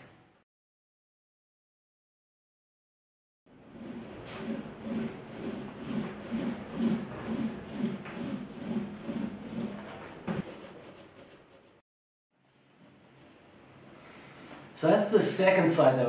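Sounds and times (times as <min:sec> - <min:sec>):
paint roller swishing: 0:03.5 - 0:11.8, 0:12.4 - 0:15.2.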